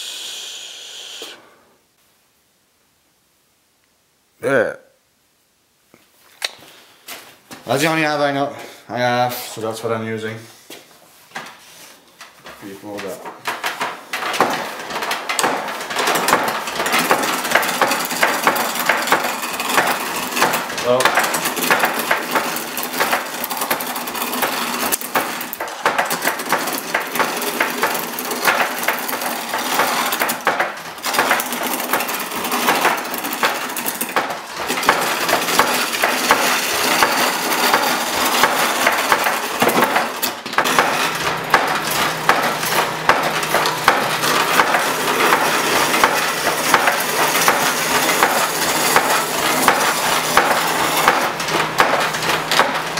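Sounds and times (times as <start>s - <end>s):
chisel scraping spinning wood: 11.4s - 52.9s.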